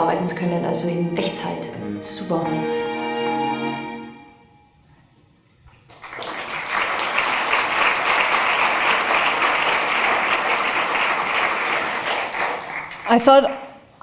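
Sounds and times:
background music: 0:00.0 - 0:04.9
audience clapping: 0:05.7 - 0:13.7.

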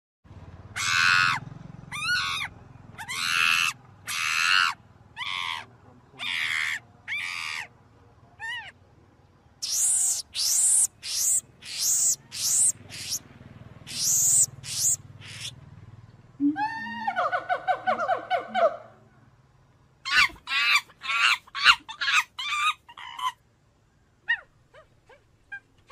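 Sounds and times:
monkey screaming: 0:00.8 - 0:07.7, 0:08.4 - 0:08.8, 0:09.6 - 0:13.2, 0:13.9 - 0:15.5, 0:20.0 - 0:23.4.

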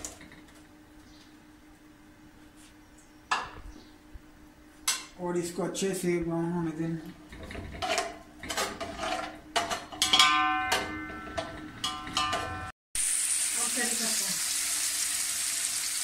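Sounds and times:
metal spatula scraping a pot: 0:07.8 - 0:09.9
onions sizzling: 0:13.0 - 0:16.0.

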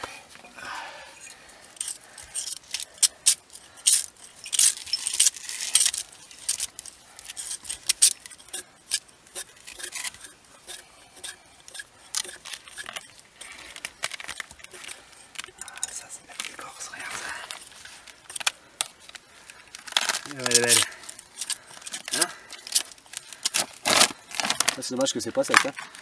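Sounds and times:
knife scraping bark off branch: 0:02.0 - 0:16.0.

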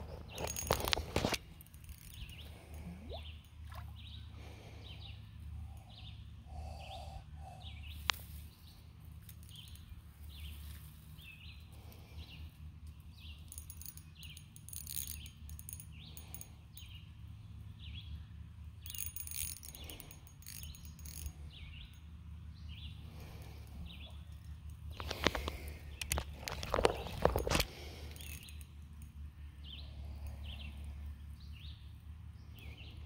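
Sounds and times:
steady low hum: 0:00.0 - 0:33.0
bird chirping: 0:02.0 - 0:08.8.

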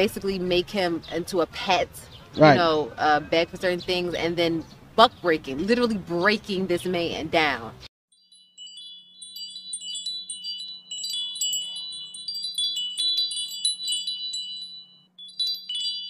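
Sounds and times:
wind chimes tinkling: 0:08.1 - 0:16.0.

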